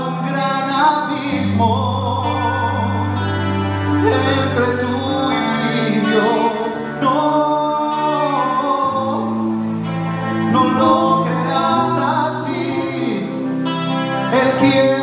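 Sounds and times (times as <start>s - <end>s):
electric guitars: 0.0s - 15.0s
person singing long notes: 0.0s - 15.0s.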